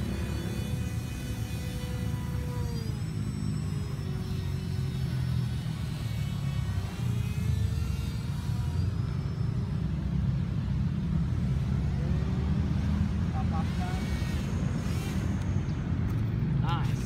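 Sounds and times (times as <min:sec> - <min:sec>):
small propeller motor whine: 0:00.0 - 0:17.0.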